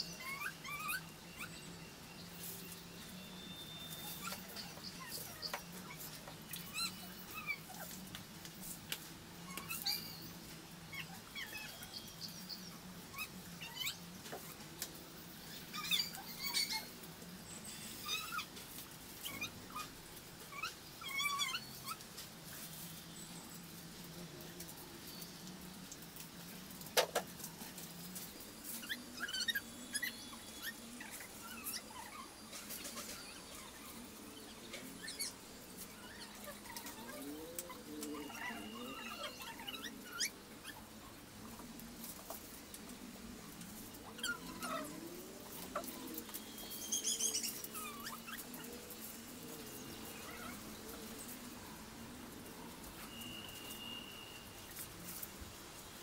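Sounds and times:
high chirping animal calls: 0.0 - 8.0, 15.4 - 17.0, 20.5 - 22.0, 28.7 - 40.9, 44.0 - 49.0
dry leaves rustling and crackling: 0.0 - 56.0.

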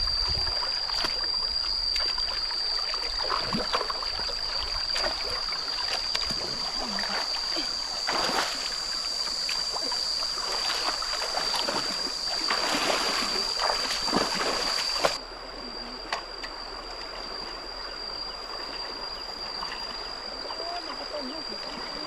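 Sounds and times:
stream running: 0.0 - 22.0
water splashing from wading: 0.3 - 15.2.

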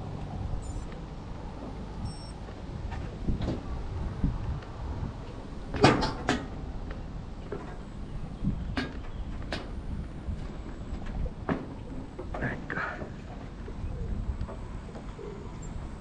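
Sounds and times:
low steady rumble: 0.0 - 5.7.

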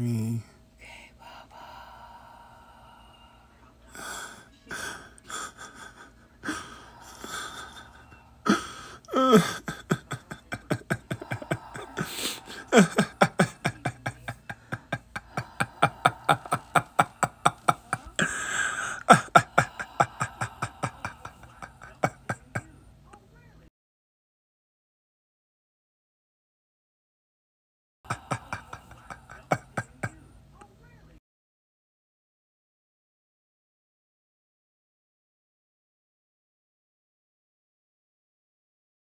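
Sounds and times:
person gasping and breathing hard: 4.0 - 22.6, 28.1 - 30.1
person groaning: 4.8 - 22.6, 28.1 - 30.1.

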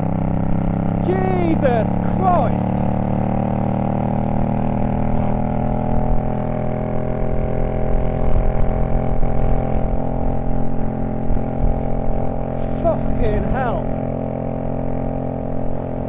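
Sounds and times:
motorcycle engine cruising: 0.0 - 16.0
wind rumble on microphone: 4.7 - 16.0.

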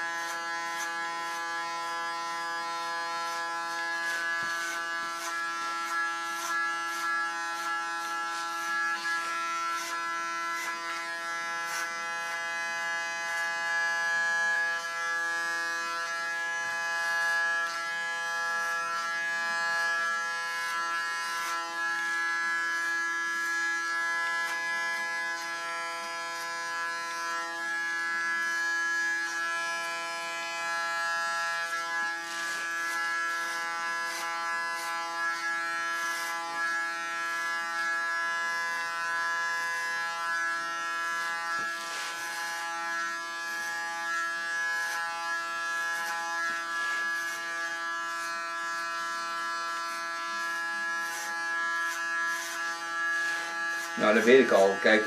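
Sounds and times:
electric hair clipper buzzing: 0.0 - 55.0.

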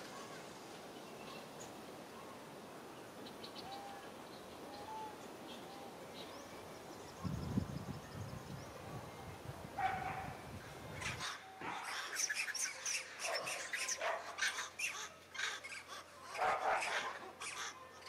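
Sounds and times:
high-pitched animal calls: 11.0 - 18.0.

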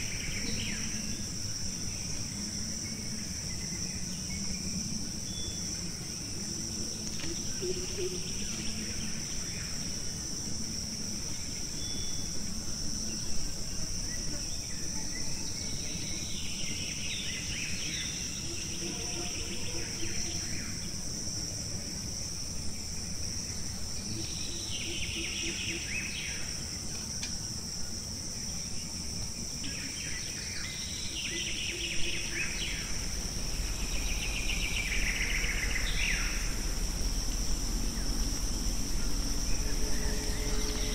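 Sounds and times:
high-pitched insect drone: 0.0 - 40.9
birds chirping: 30.7 - 40.9.

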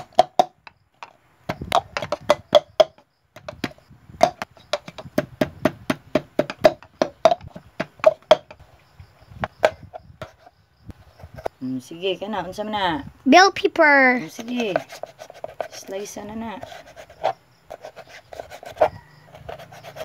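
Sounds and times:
knife chopping on plastic board: 0.0 - 8.6.

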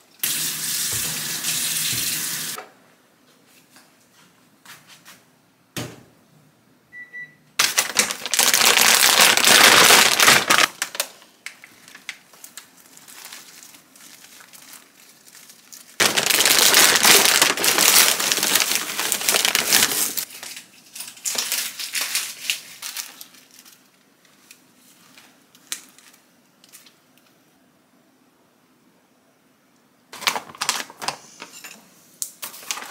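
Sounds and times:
paper pouch rustling: 7.6 - 11.1, 11.8 - 20.5
plastic bag crinkling: 7.6 - 24.7, 30.2 - 31.5.

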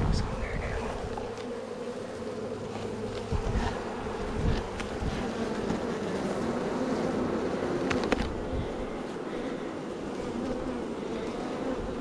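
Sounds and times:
bees buzzing: 0.0 - 12.0
wooden knocks of hive box: 2.6 - 5.9, 7.8 - 8.4.

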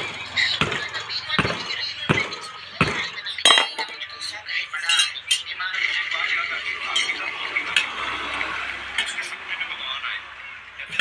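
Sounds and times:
hammer clinking on steel wheel rim: 0.0 - 5.5.

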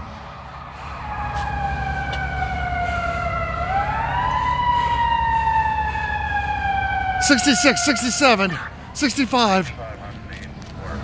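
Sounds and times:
fire engine siren wailing: 0.0 - 11.0.

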